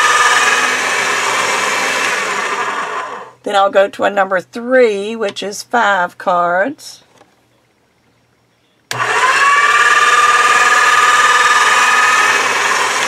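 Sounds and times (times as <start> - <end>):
motorized pasta machine whining: 0.0 - 3.4, 8.9 - 13.0.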